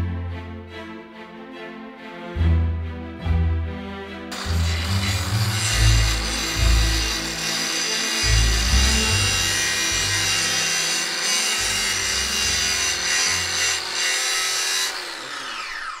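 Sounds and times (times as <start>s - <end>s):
angle grinder whining: 4.3s - 16.0s.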